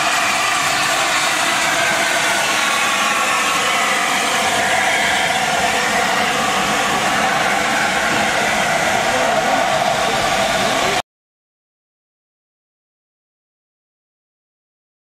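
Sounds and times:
steam locomotive passing: 0:00.0 - 0:11.0.

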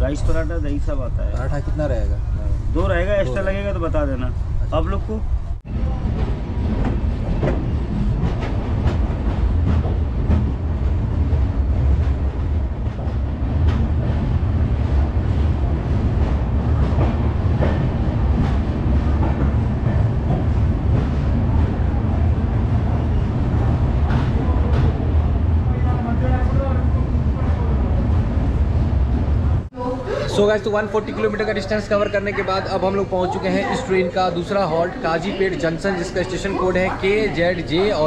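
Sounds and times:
train running gear rumble: 0:00.0 - 0:29.7.

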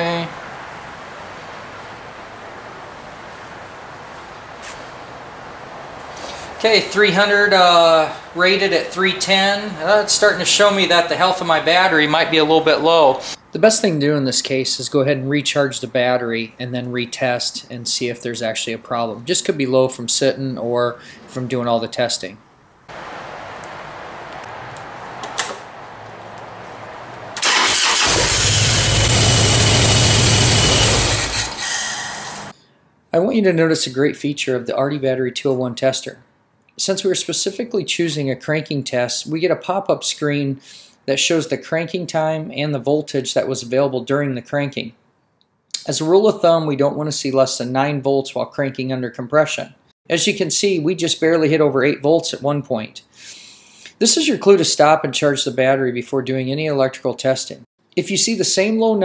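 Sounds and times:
steady background hiss: 0:00.0 - 0:28.7
faint brief rustle: 0:04.6 - 0:04.9
motorcycle engine running: 0:25.9 - 0:31.6
electric starter cranking: 0:27.3 - 0:32.5.

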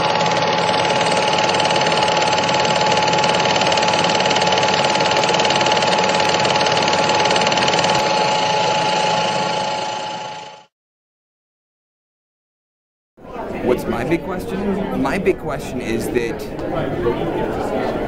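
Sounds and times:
machine whirring with even clatter: 0:00.0 - 0:10.7.

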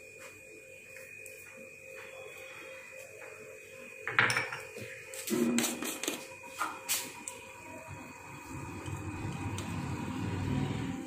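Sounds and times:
glass bowls clinking: 0:04.0 - 0:04.8.

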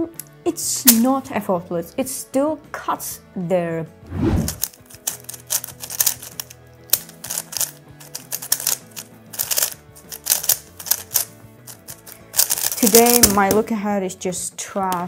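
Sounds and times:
plastic puzzle cube clicking: 0:04.5 - 0:13.6.

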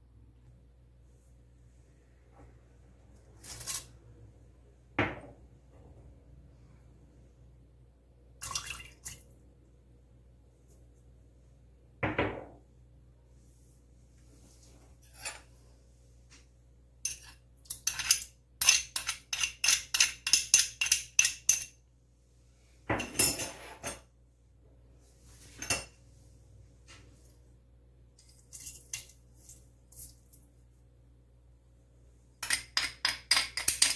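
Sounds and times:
metal spoon clinking on ceramic bowl: 0:17.1 - 0:21.8, 0:32.4 - 0:33.9.

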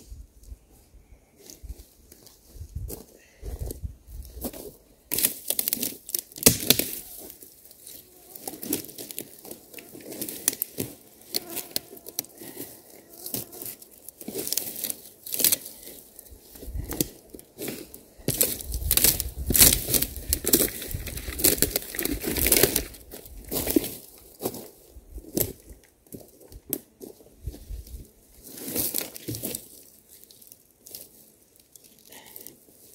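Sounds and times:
dry branches snapping and rustling: 0:05.1 - 0:24.6, 0:27.5 - 0:32.9.

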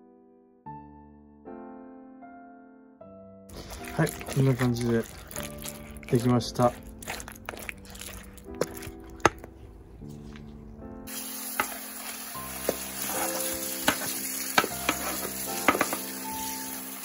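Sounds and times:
background music: 0:00.0 - 0:17.0
tap water running through strainer: 0:03.5 - 0:09.5, 0:11.1 - 0:17.0
wooden pestle knocking metal bowl: 0:13.9 - 0:16.0.

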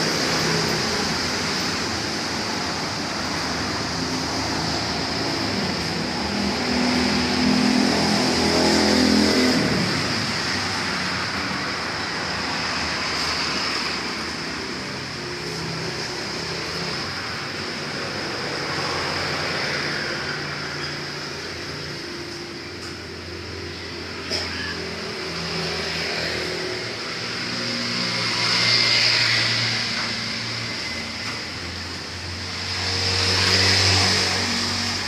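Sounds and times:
engine revving: 0:03.5 - 0:11.4, 0:25.0 - 0:35.0.

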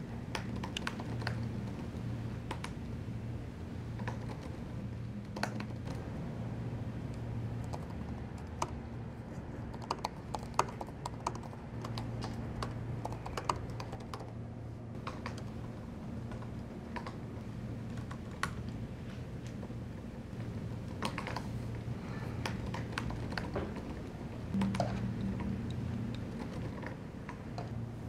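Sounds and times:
steady low hum: 0:00.0 - 0:28.0
laptop keyboard typing: 0:00.3 - 0:02.8, 0:04.0 - 0:04.6, 0:05.2 - 0:06.0, 0:07.6 - 0:08.8, 0:09.6 - 0:14.4, 0:20.8 - 0:21.5, 0:22.4 - 0:27.8.

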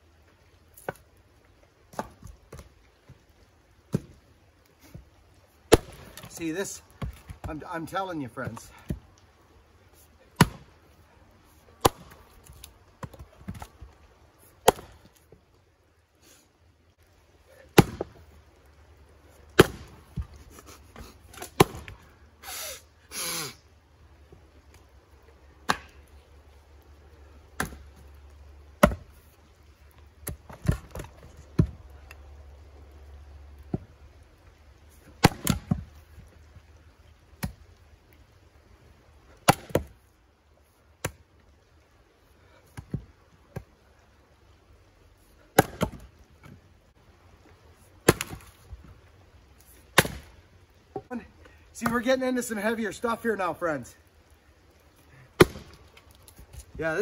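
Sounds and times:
axe chopping wood: 0:01.9 - 0:02.7, 0:03.9 - 0:04.2, 0:05.7 - 0:07.6, 0:10.4 - 0:10.7, 0:11.8 - 0:13.7, 0:14.6 - 0:15.1, 0:17.7 - 0:18.2, 0:19.6 - 0:20.4, 0:21.4 - 0:22.0, 0:25.6 - 0:26.0, 0:27.6 - 0:27.9, 0:28.8 - 0:29.2, 0:30.2 - 0:31.8, 0:35.2 - 0:35.9, 0:37.4 - 0:37.6, 0:39.4 - 0:39.9, 0:45.5 - 0:46.1, 0:48.0 - 0:48.6, 0:50.0 - 0:50.3, 0:55.4 - 0:55.9.

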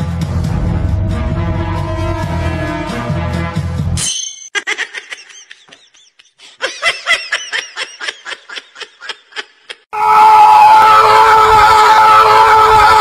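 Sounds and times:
background music: 0:00.0 - 0:04.0.

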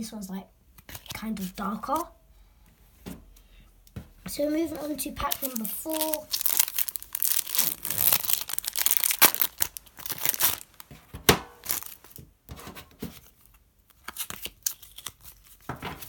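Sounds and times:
cards being handled: 0:04.7 - 0:10.9, 0:11.6 - 0:12.2, 0:13.1 - 0:15.7
foil wrapper tearing and crinkling: 0:05.2 - 0:10.9, 0:11.6 - 0:12.2, 0:13.4 - 0:15.7.

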